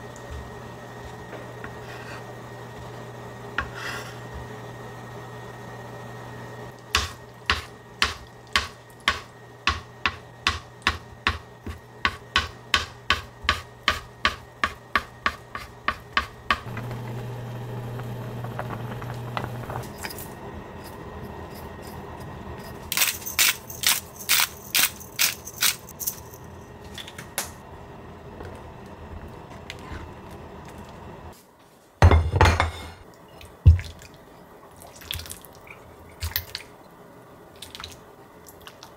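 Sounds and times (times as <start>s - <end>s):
knife chopping on cutting board: 7.0s - 16.7s
soup simmering and bubbling: 16.7s - 19.8s
low hum: 16.7s - 23.8s.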